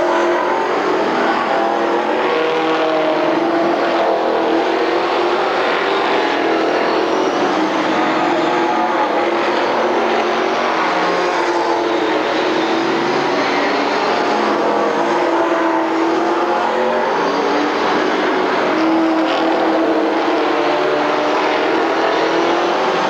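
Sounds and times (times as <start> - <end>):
race car engines passing: 0.0 - 23.0.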